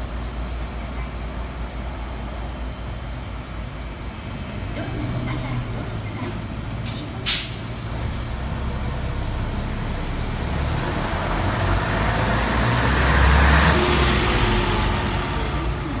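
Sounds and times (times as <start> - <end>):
bus diesel engine: 0.0 - 16.0
air brake hiss: 6.8 - 7.8.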